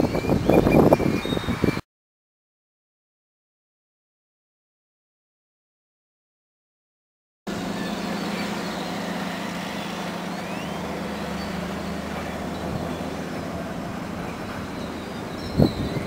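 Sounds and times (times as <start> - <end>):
heavy vehicle engine running: 7.5 - 16.0
faint high chirps: 7.7 - 13.2.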